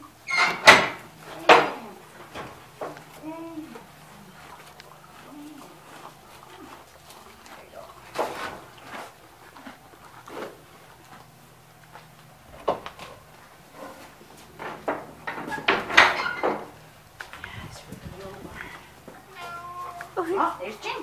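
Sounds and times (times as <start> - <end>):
knocks and clatters: 14.4 - 16.8.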